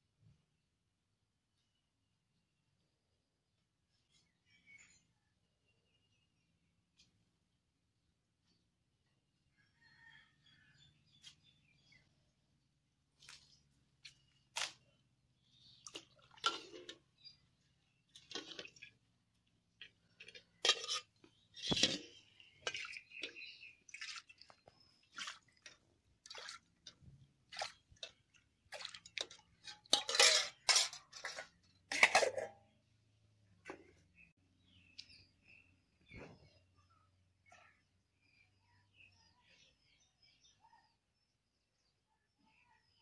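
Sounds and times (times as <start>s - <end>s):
steel ladle clanking on pots: 16.2s - 17.4s, 19.8s - 23.6s, 27.6s - 32.8s.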